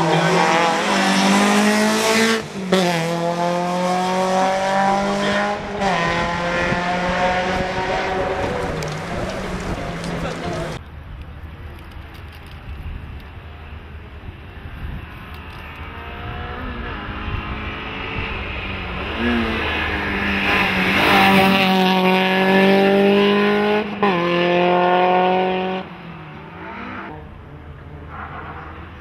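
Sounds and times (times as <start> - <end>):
race car accelerating past: 0.0 - 10.8, 15.8 - 25.9.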